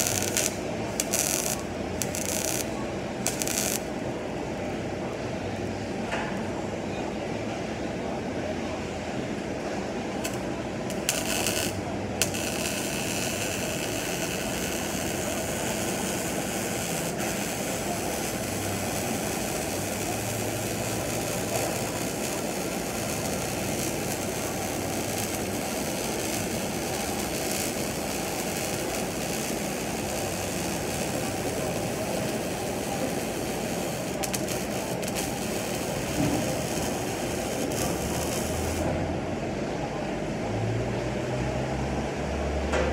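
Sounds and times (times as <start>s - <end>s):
electric arc welding crackling hiss: 0.0s - 4.0s, 10.2s - 39.1s.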